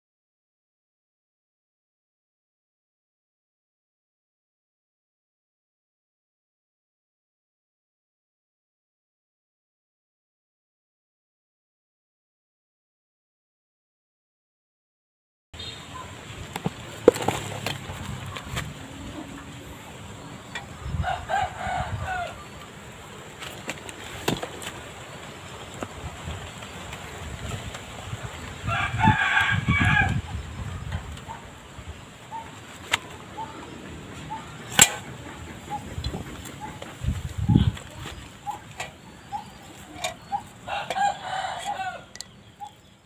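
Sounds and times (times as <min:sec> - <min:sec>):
handling clicks and knocks: 0:16.5 - 0:18.8, 0:39.9 - 0:41.0
rooster crowing: 0:21.0 - 0:22.6, 0:28.6 - 0:30.3, 0:40.6 - 0:42.2
chicken clucking: 0:32.3 - 0:42.8.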